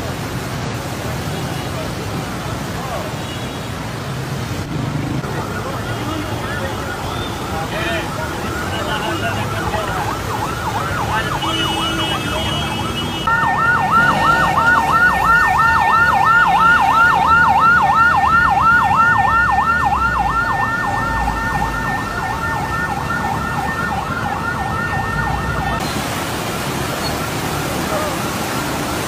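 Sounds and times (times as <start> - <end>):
electronic siren yelping: 5.3 - 25.8
steady siren tone: 5.3 - 25.8.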